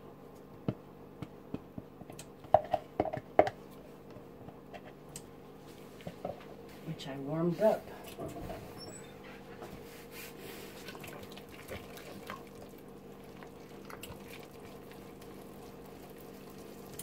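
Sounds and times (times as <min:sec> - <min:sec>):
whisk squishing thick paste: 0:10.4 - 0:17.0.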